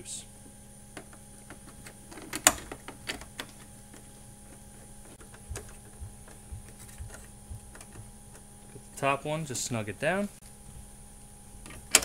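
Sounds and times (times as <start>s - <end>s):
soft low knocks: 5.2s - 8.4s.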